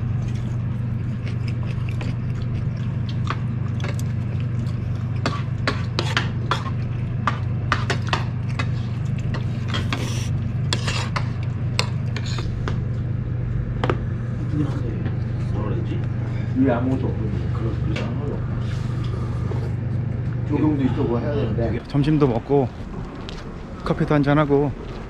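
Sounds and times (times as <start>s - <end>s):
chewing: 0.0s - 13.0s
steady low hum: 0.0s - 25.0s.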